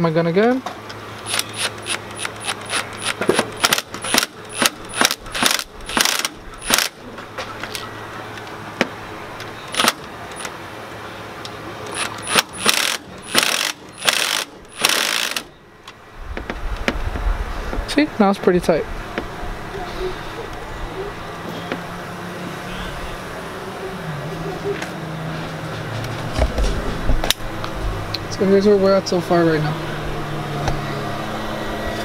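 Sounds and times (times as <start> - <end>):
ratchet clicking: 1.2 - 7.0, 9.7 - 10.5, 11.9 - 15.5.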